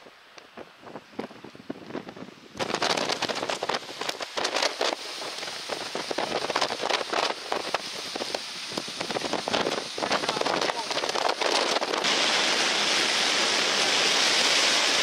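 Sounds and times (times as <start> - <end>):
gusty wind buffeting microphone: 0.0 - 15.0.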